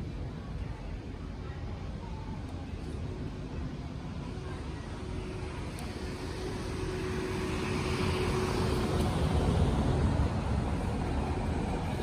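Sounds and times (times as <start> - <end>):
motor vehicle passing: 5.9 - 12.0.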